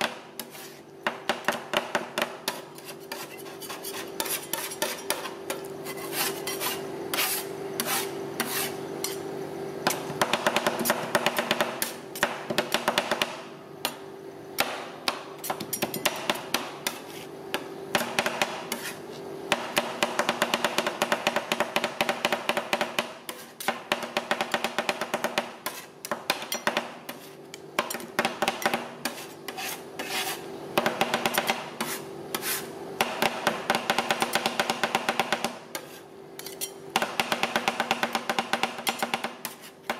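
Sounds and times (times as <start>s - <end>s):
metal spatulas clacking on plate: 36.4s - 36.8s.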